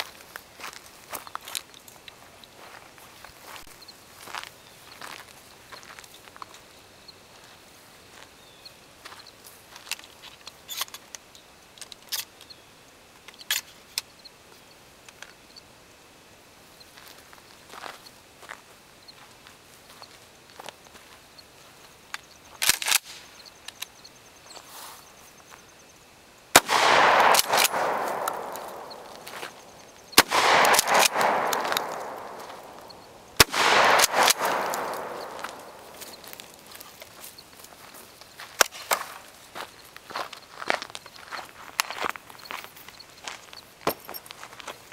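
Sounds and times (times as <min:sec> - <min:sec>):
shotgun metallic clicks: 0:09.8 - 0:12.6, 0:22.1 - 0:23.9, 0:26.6 - 0:37.2.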